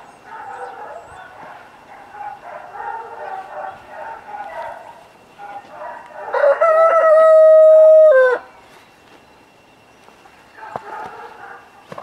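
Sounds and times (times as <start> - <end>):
rooster crowing: 5.8 - 8.6.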